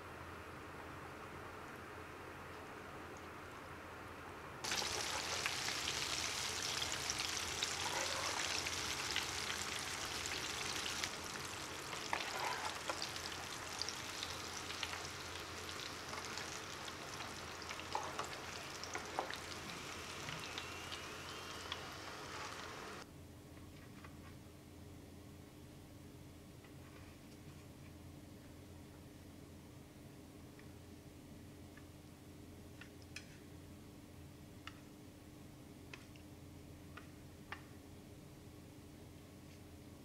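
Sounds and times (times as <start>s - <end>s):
fish deep-frying in hot oil: 4.6s - 23.0s.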